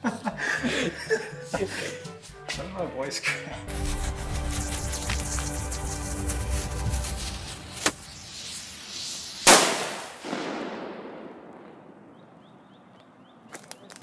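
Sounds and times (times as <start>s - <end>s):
fuse hissing: 3.7s - 10.2s
firecracker loud bang: 7.2s - 12.0s
sharp pop: 7.8s - 8.1s, 9.4s - 11.7s.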